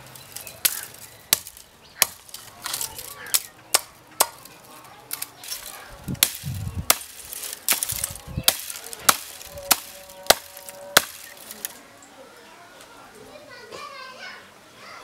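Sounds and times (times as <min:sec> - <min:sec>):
knife chopping dry branches: 0:00.0 - 0:11.8
twigs crackling: 0:00.0 - 0:12.1.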